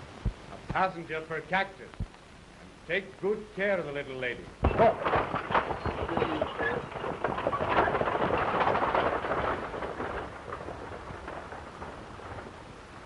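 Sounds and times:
clatter of hooves and wheels: 4.6s - 13.0s.

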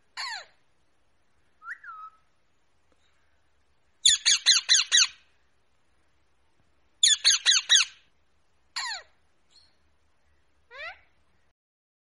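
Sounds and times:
parakeet squawking: 0.2s - 0.6s, 4.0s - 5.2s, 7.0s - 8.0s, 8.8s - 9.2s, 10.7s - 11.0s.

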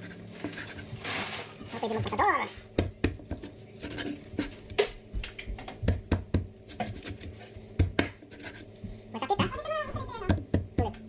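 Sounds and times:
cleaver chopping on wooden board: 5.5s - 8.2s.

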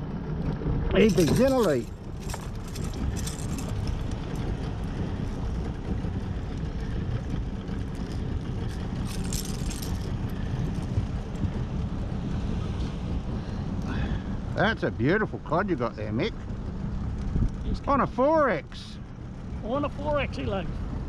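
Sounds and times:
steady low rumble: 0.0s - 21.0s
hooks and pliers rattling: 1.0s - 4.6s, 7.9s - 10.9s.

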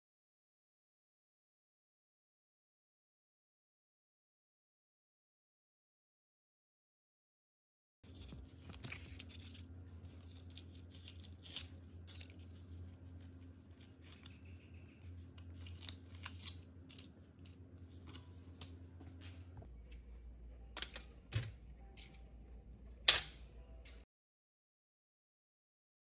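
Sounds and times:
paper liners rustling and crinkling: 8.1s - 18.6s
low steady hum: 8.1s - 24.1s.

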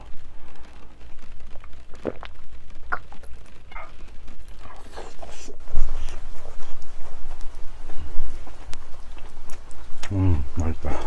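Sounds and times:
person gulping and swallowing: 1.6s - 6.7s.

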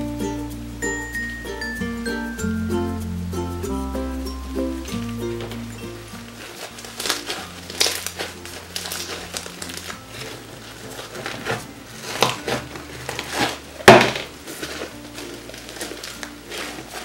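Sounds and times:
soft background music: 0.0s - 17.0s
slime popping: 4.9s - 17.0s
slime squishing and crackling: 5.0s - 17.0s.

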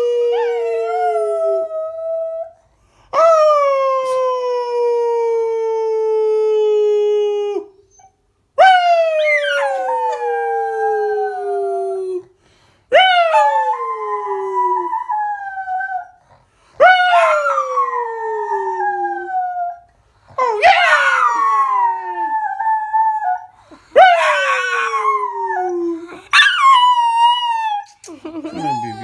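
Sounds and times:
dog howling: 20.4s - 27.9s.

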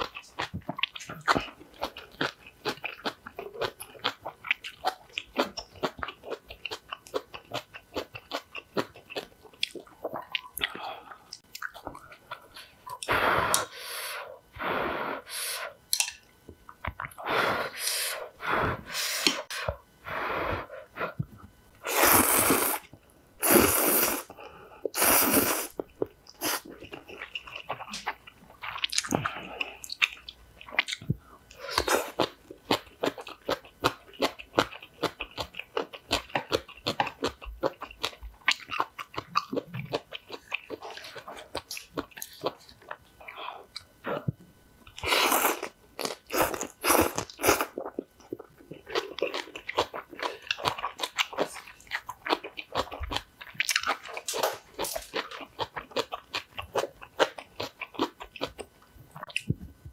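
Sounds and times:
close-miked chewing: 0.0s - 13.7s, 25.8s - 59.6s.

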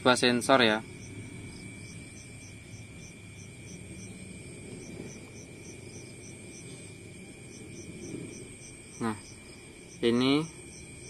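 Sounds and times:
cricket chirping: 0.0s - 11.0s
faint steady high tone: 6.2s - 11.0s.

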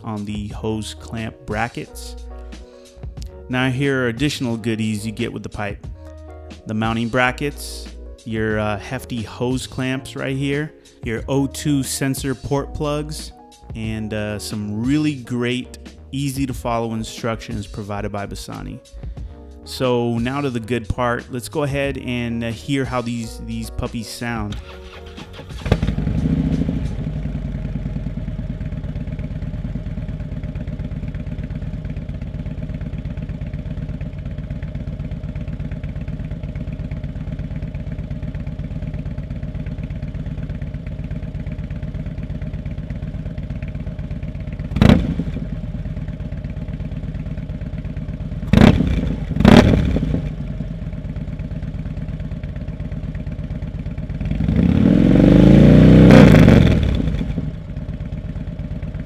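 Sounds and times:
motorcycle engine idling and revving: 6.7s - 19.3s, 24.4s - 59.0s.

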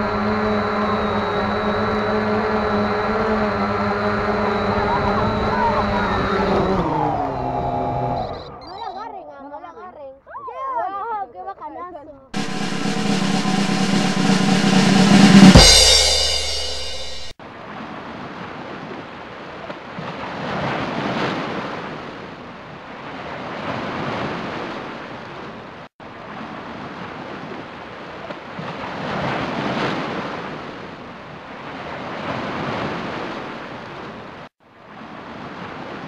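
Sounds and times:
ocean waves washing in: 28.7s - 36.0s.

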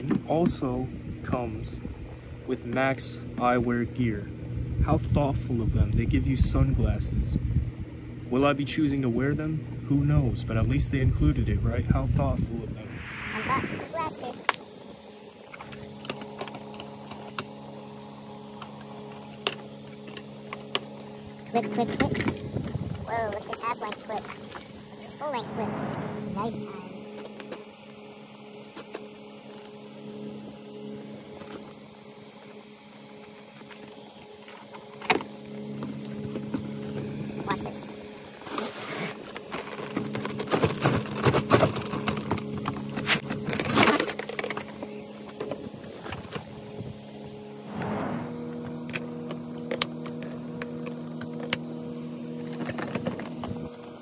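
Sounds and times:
steady electrical hum: 0.3s - 28.7s.

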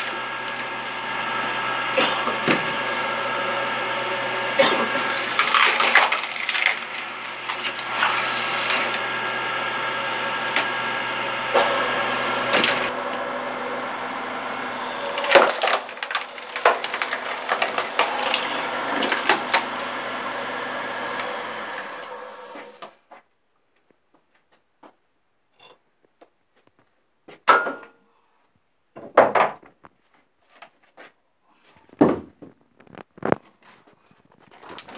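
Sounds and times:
wood cracking and splintering: 0.0s - 12.9s, 14.0s - 22.9s, 34.4s - 34.9s
electric motor humming: 0.0s - 22.9s.

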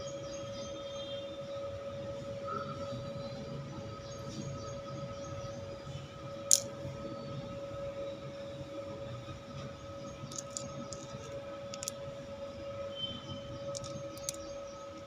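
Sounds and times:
steady mid-pitched hum: 0.0s - 15.0s
crystals clicking together: 6.4s - 6.8s, 10.3s - 12.1s, 13.7s - 14.5s.

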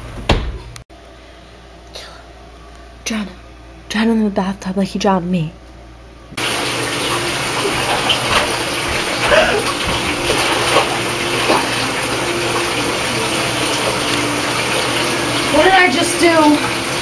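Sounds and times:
water running from bathtub tap: 6.4s - 17.0s
water splashing: 6.4s - 17.0s.

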